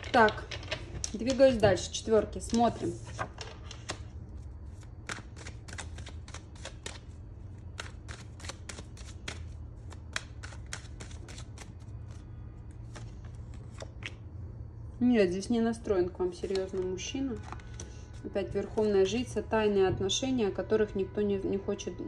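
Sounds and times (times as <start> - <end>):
cards being shuffled: 2.4 - 14.2, 16.4 - 18.8.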